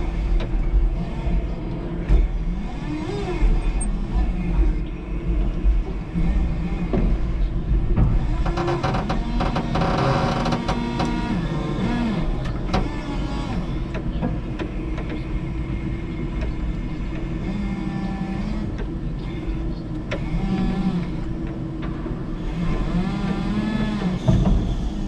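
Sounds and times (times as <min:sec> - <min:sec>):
electric forklift motor whine: 0:08.2 - 0:14.2, 0:14.8 - 0:25.0.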